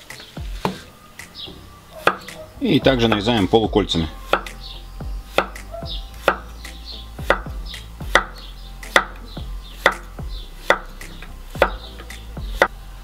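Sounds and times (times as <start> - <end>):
knife slicing zucchini: 9.8 - 10.9.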